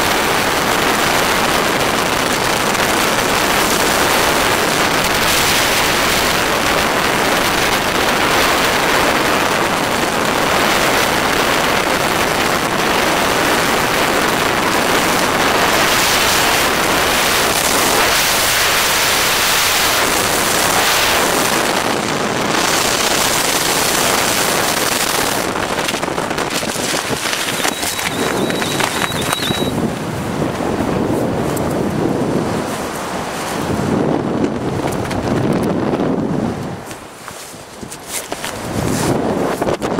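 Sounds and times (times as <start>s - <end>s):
freefall wind roaring: 0.0s - 37.2s, 38.4s - 39.9s.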